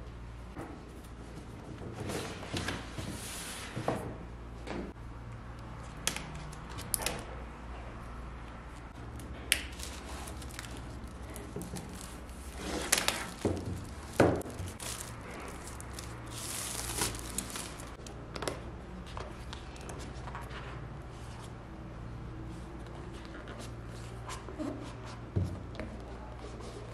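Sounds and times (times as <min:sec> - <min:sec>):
plastic wrap crinkling and tearing: 0:09.6 - 0:18.0.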